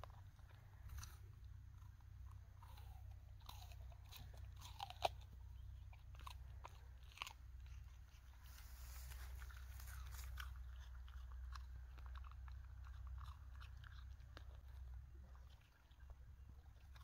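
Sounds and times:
dog crunching an apple: 0.0 - 17.0
low steady rumble: 0.0 - 17.0.

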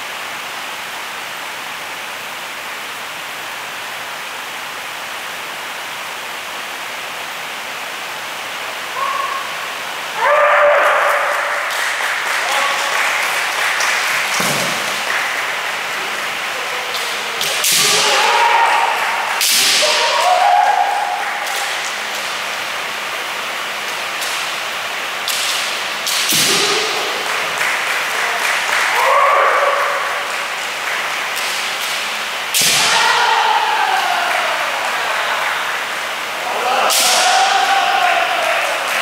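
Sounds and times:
people shouting: 8.9 - 11.7, 17.5 - 21.8, 26.4 - 27.4, 28.3 - 30.4, 32.6 - 39.0
bamboo swords striking armour: 32.5 - 33.0.

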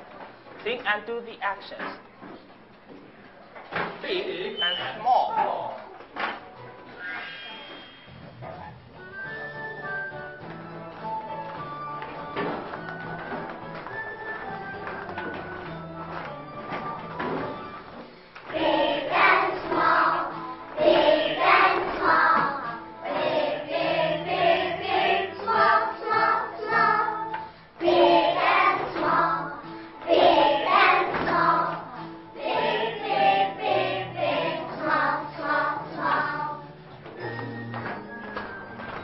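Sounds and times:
recorded backing music: 8.1 - 39.0
children singing in unison: 18.5 - 36.8.

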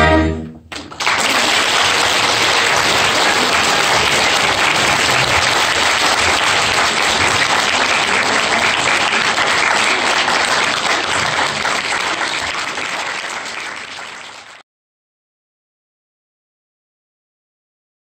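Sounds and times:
audience applauding: 0.7 - 14.6.

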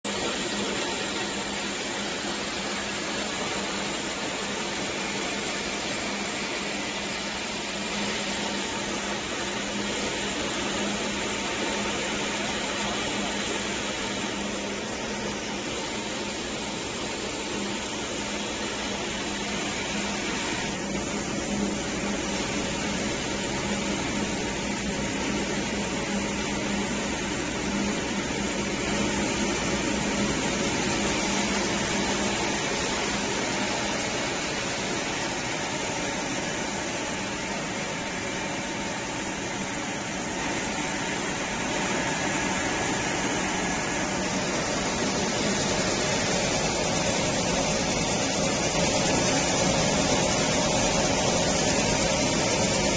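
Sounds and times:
rice rushing through mill: 0.1 - 52.9.

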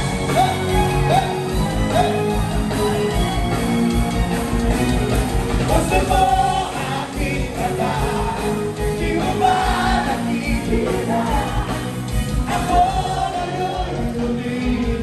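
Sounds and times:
live band playing rock: 0.0 - 15.0
crowd singing along: 5.6 - 15.0.

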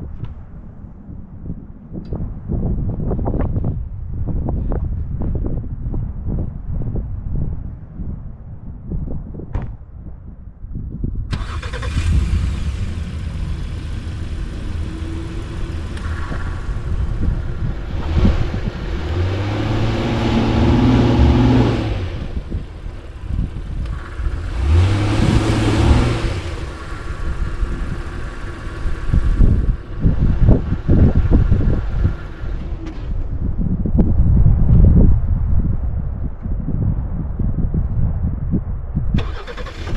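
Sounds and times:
engine revving under load: 11.3 - 33.3
wheels spinning in dirt: 11.4 - 33.4.

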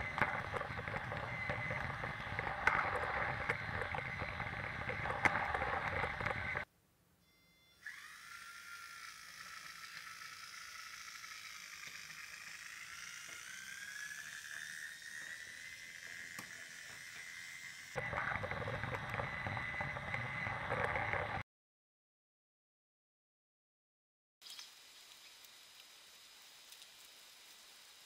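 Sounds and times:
toy train motor whining: 0.0 - 6.6, 7.8 - 21.4.

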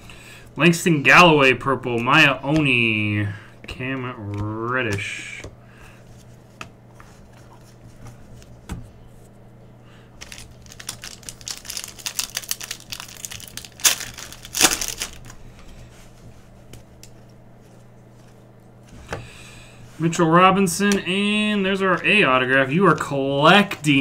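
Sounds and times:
foil wrapper crinkling: 10.2 - 15.4
foil wrapper ripping: 10.2 - 15.4.

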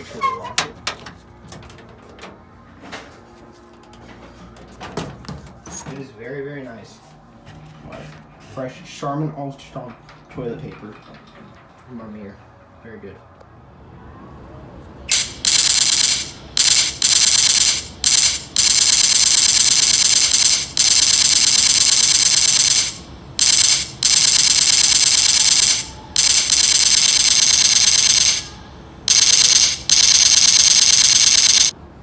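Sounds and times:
rapid rattling bursts: 15.1 - 31.7.

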